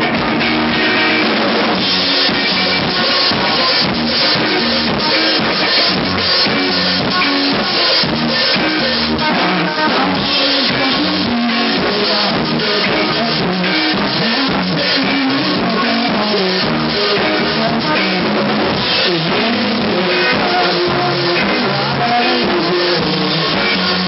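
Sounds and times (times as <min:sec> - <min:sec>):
electric guitar: 0:00.0 - 0:24.0
rock band playing: 0:00.0 - 0:24.0.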